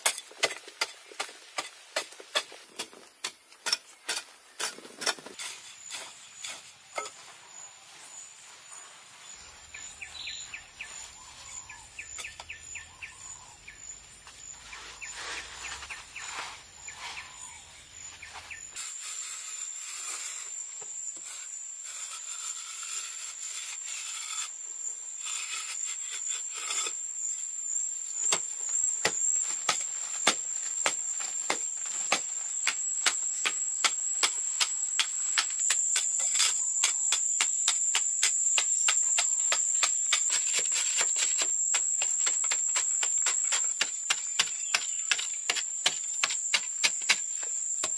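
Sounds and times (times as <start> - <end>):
birds chirping: 5.3 - 18.8, 43.1 - 46.1.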